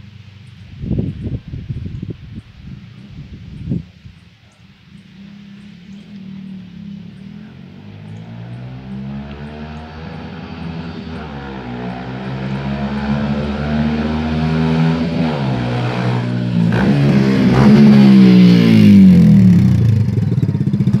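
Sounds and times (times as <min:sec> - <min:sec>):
motorcycle engine revving: 0:04.6 - 0:21.0.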